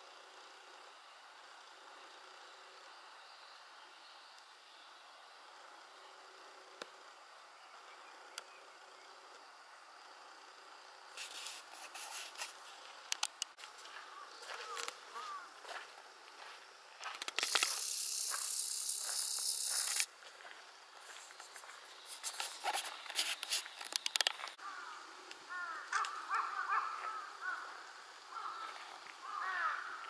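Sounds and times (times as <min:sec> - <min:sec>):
loud steady hiss: 0:09.4 - 0:13.6, 0:16.7 - 0:20.2
birds chirping: 0:17.5 - 0:20.0.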